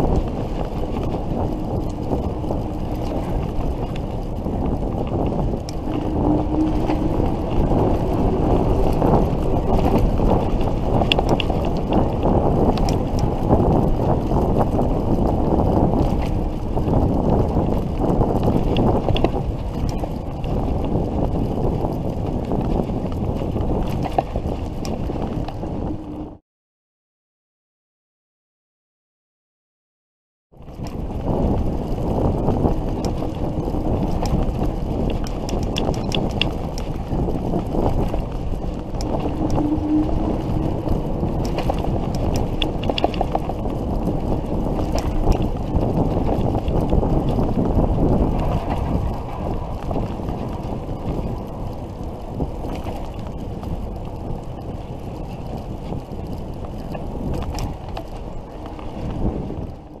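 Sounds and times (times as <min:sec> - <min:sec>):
wind rushing over microphone: 0:00.0 - 0:26.4, 0:30.5 - 1:00.0
light clicks and rattles: 0:41.4 - 0:43.7.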